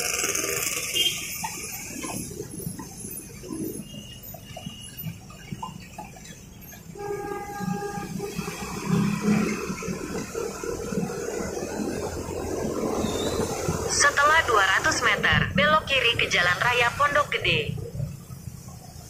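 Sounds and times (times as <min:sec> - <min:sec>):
traffic engines and tyres rumbling: 0:00.0 - 0:19.0
vehicle horn: 0:00.8 - 0:01.3, 0:06.9 - 0:09.4.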